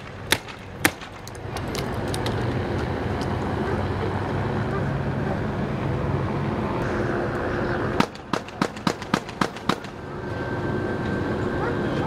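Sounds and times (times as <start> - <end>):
vehicles idling rumble: 0.0 - 12.0
rapid gunshots: 8.0 - 10.0.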